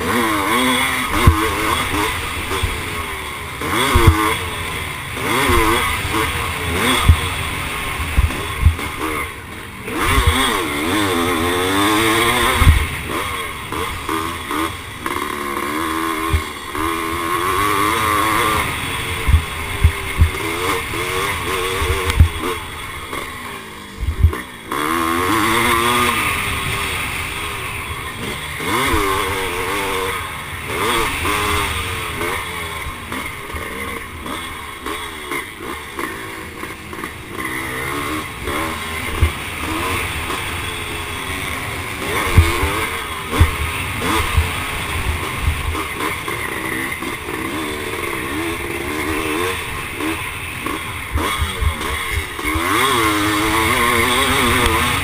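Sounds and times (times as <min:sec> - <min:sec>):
motorcycle engine revving: 0:00.0 - 0:55.0
low thumps: 0:24.0 - 0:24.3.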